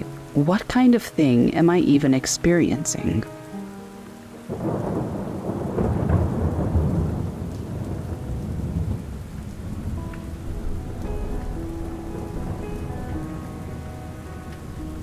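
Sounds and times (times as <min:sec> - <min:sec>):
steady rain: 0:00.0 - 0:15.0
thunder rolling: 0:04.5 - 0:15.0.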